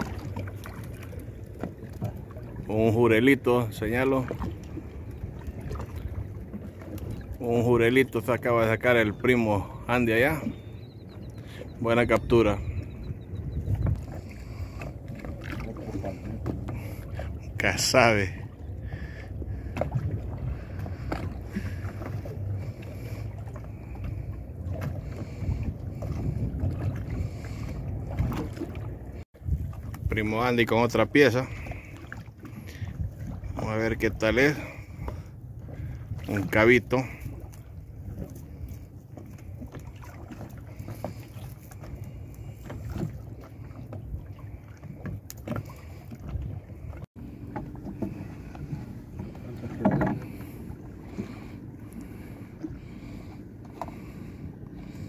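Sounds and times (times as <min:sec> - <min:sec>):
water lapping against boat hull: 0:00.0 - 0:55.0
wind rumbling on microphone: 0:10.4 - 0:17.7, 0:18.3 - 0:30.7, 0:31.5 - 0:55.0.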